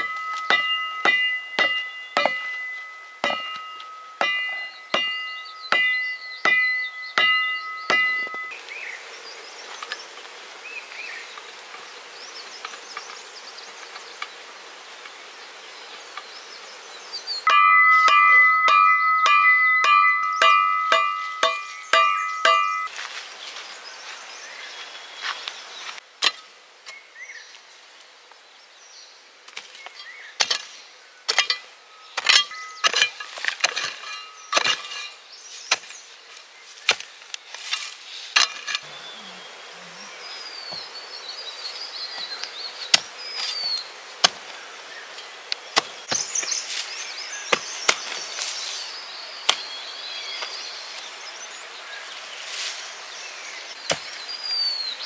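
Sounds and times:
blade chopping on wood: 0.0s - 2.5s, 3.2s - 3.6s, 44.2s - 44.4s, 53.8s - 54.2s.

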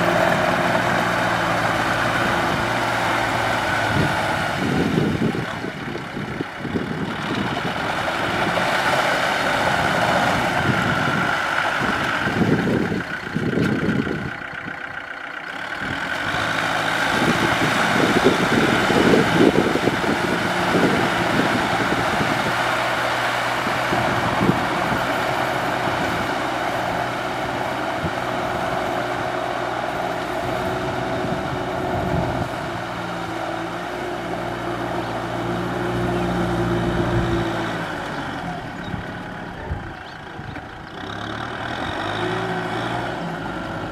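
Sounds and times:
tractor diesel engine under load: 0.0s - 43.9s.

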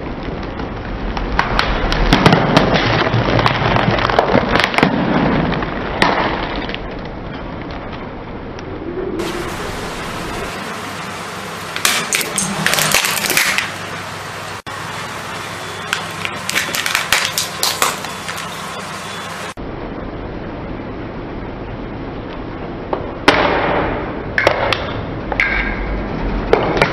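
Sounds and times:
plastic crushed under tyre: 1.3s - 6.9s, 15.9s - 18.5s
car engine running: 9.2s - 19.6s.

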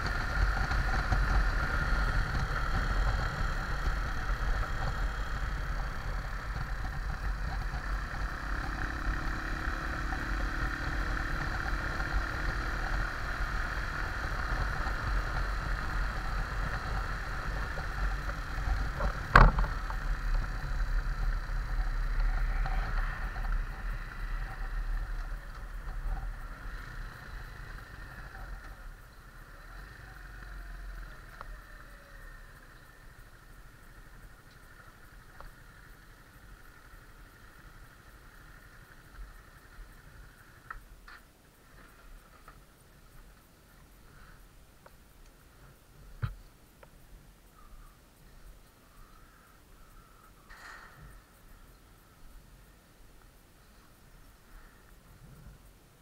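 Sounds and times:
wind noise: 0.0s - 29.9s
motorcycle engine: 0.0s - 41.2s.

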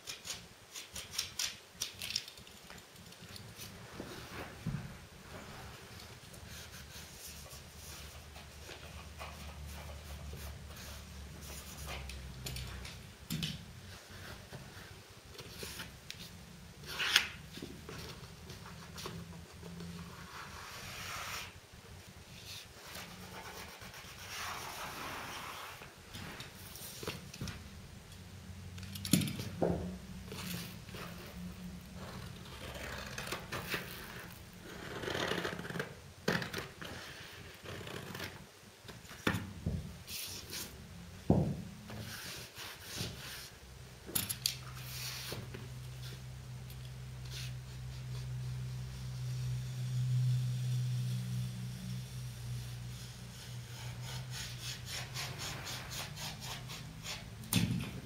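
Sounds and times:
paper rubbed against wall: 19.8s - 21.6s, 22.4s - 27.0s, 44.8s - 46.2s, 47.3s - 57.3s.

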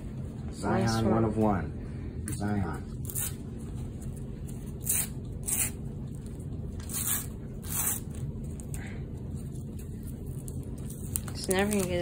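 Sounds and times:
wrapper crinkling rips: 9.8s - 12.0s.

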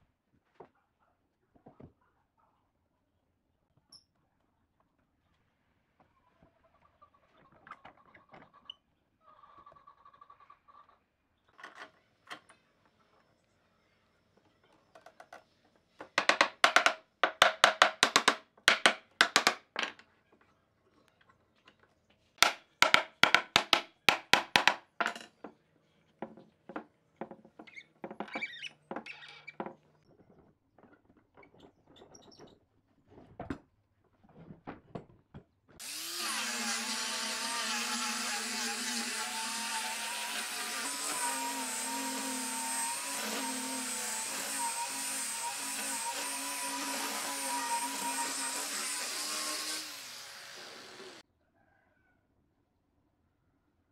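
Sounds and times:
sharp clicks and knocks: 16.0s - 20.0s, 22.4s - 25.2s
angle grinder sanding wood: 35.8s - 51.2s.

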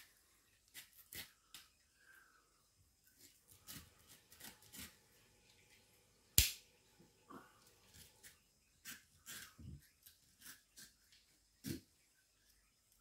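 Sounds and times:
knife cutting leathery skin: 0.6s - 1.6s, 3.2s - 5.1s.

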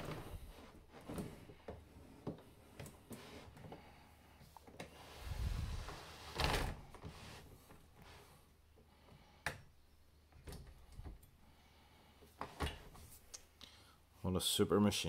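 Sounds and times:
rustling rubbing noise: 5.0s - 8.4s.

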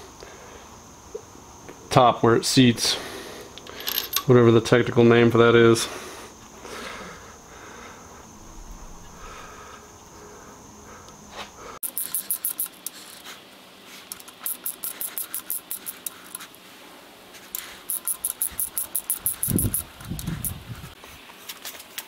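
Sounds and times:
socket ratchet clicking: 11.8s - 13.0s, 14.2s - 16.1s, 17.9s - 20.6s.

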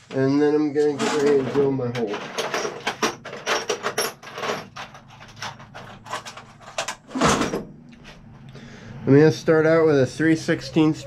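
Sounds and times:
tools clicking and knocking: 1.0s - 7.1s.

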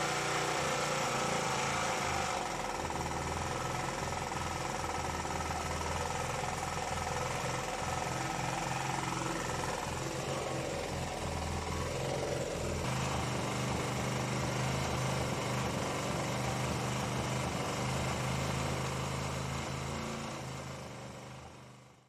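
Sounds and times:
generator engine running: 0.0s - 22.0s.

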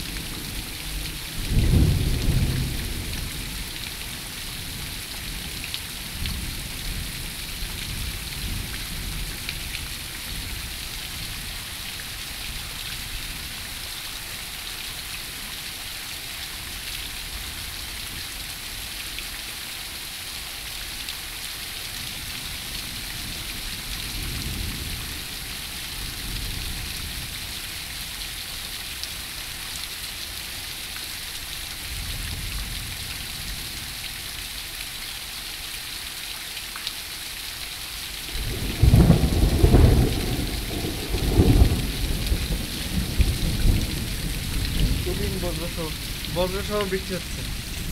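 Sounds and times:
heavy rain pouring: 0.0s - 47.9s
low thunder rumbles: 0.4s - 4.8s, 38.3s - 47.9s.

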